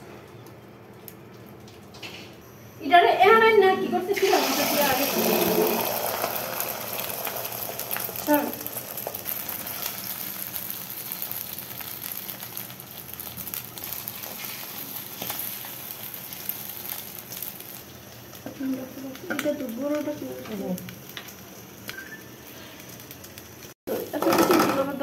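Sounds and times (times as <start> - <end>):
egg sizzling in hot oil: 3.8 - 25.0.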